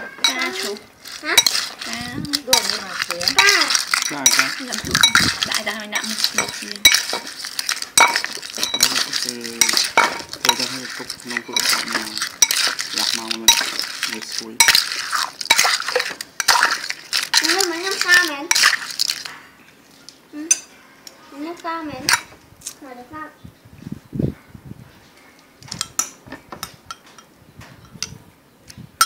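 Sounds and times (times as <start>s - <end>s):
metal spoon scraping ceramic bowl: 0.2s - 19.4s.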